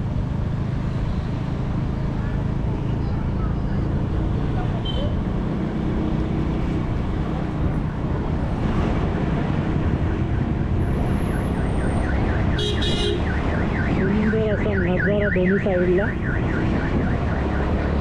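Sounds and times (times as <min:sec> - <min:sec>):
motorcycle wind and road noise: 0:00.0 - 0:18.0
warbling electronic alarm siren: 0:10.0 - 0:18.0.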